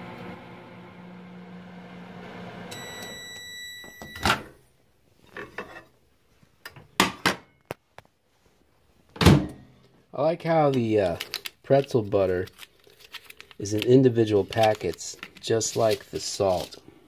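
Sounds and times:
microwave humming: 0.0 - 4.5
microwave beeps: 2.5 - 4.5.

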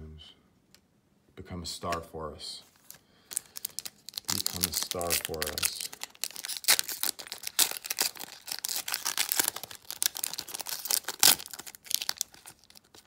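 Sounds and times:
plastic wrapper tearing and crinkling: 2.8 - 13.0.

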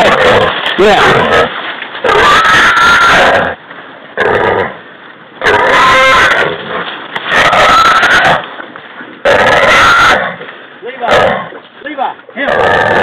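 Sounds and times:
hog squealing: 0.0 - 3.6, 7.3 - 8.4, 9.3 - 10.4.

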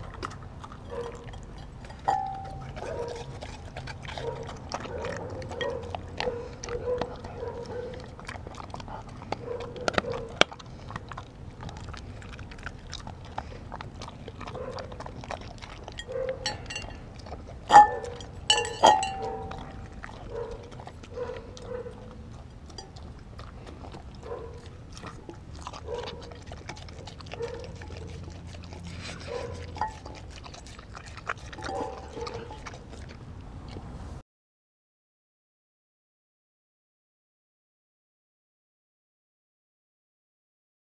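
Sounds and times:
dog lapping and chewing: 0.0 - 34.2
teeth clicking against glass: 16.0 - 17.1, 17.7 - 20.0, 29.3 - 30.2
glass bowl knocks: 17.7 - 19.3.

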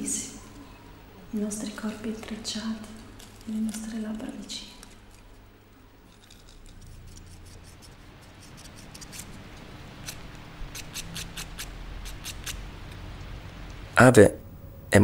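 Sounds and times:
low steady hum: 0.0 - 15.0
toenail clipper snips: 10.0 - 12.6.

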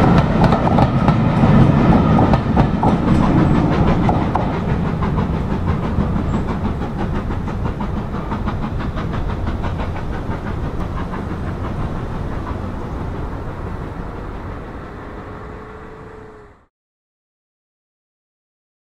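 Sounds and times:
steam locomotive exhaust beat: 0.0 - 16.7.

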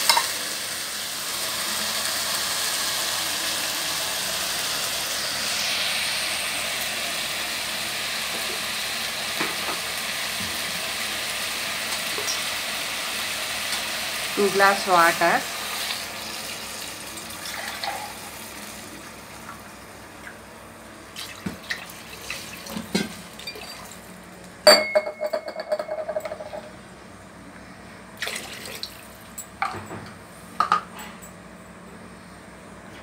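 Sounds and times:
metal clinking on cooking pot: 24.7 - 26.5.

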